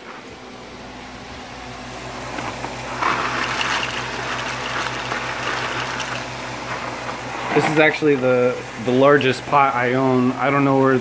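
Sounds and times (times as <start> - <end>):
fan hum: 0.0 - 11.0
dry pasta pouring into water: 2.8 - 6.6.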